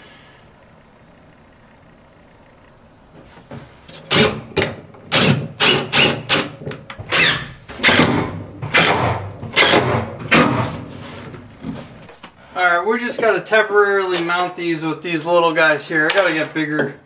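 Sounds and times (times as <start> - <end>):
cordless drill boring into wood: 5.1 - 6.5, 7.1 - 9.0.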